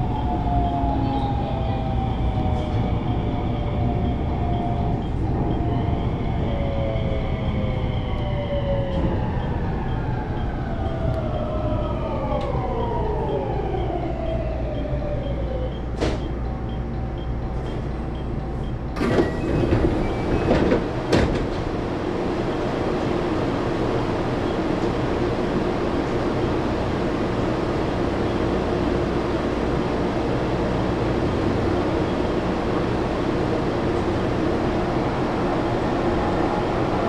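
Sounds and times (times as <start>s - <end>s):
train rumble: 0.0s - 37.0s
train clunks: 8.1s - 23.2s.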